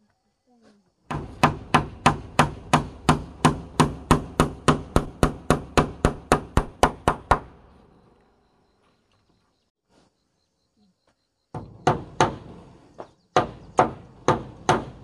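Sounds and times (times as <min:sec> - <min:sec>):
hammer blows on wood: 0:01.1 - 0:07.6.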